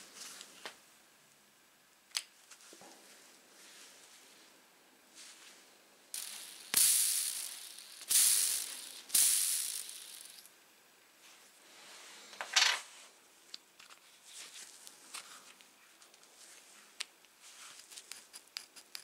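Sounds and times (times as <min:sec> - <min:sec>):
ball bearing whirring: 0:06.1 - 0:10.5.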